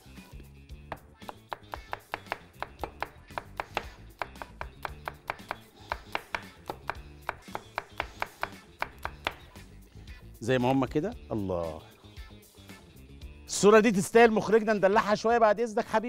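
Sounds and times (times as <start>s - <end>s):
soft background music: 0.0s - 16.0s
cleaver chopping on wooden board: 0.9s - 9.6s.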